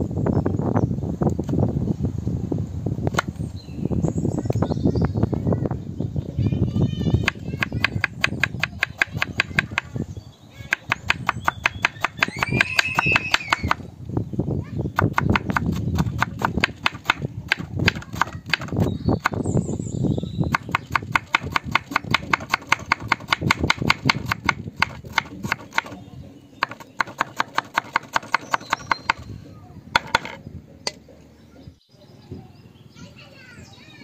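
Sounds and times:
knife chopping on cutting board: 7.2 - 9.9, 10.7 - 13.3, 15.0 - 19.4, 20.5 - 26.0, 26.6 - 29.2.

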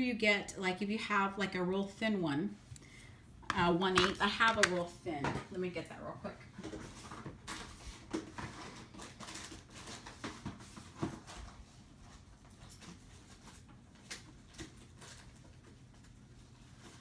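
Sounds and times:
small objects knocking and clicking: 3.4 - 4.8.

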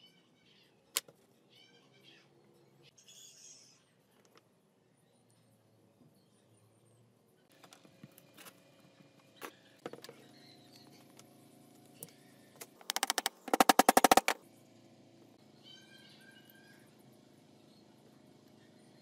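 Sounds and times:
sharp metal taps: 12.8 - 14.4.

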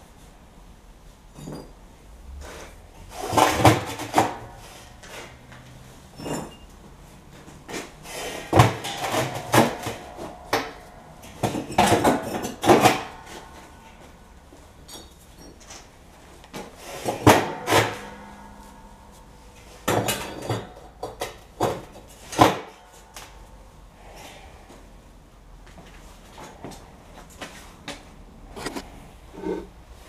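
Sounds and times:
bricks clattering in steel drum: 8.3 - 14.1, 17.0 - 23.2
metal drum ringing: 8.4 - 15.6, 17.2 - 21.6.

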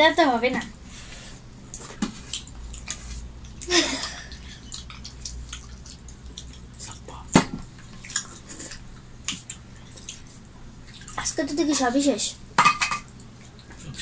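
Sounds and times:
chewing: 1.7 - 3.7, 4.5 - 7.2, 7.8 - 11.3, 13.1 - 14.0.

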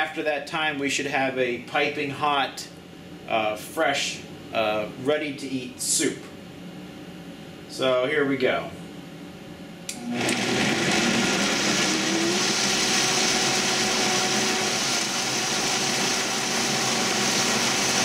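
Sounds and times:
blender switch click: 9.9 - 10.5
blender motor running: 9.9 - 18.0.

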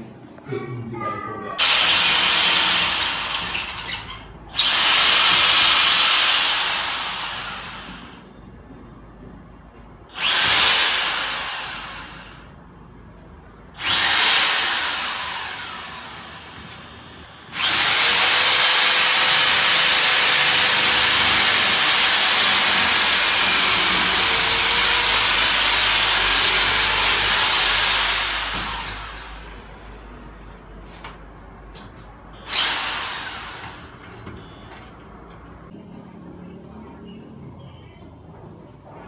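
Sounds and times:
hammer drill boring into concrete: 1.6 - 8.2, 10.2 - 12.4, 13.8 - 29.6, 32.5 - 33.9.

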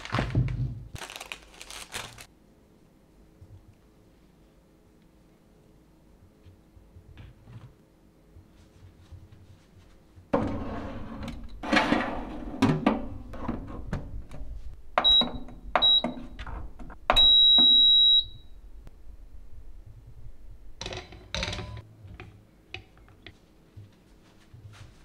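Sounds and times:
oven control panel beeping: 15.0 - 16.4, 17.1 - 18.5.

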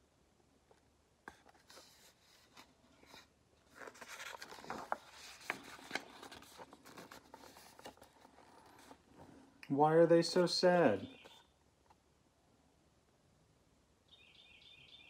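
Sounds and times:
book page turning: 1.3 - 9.4.

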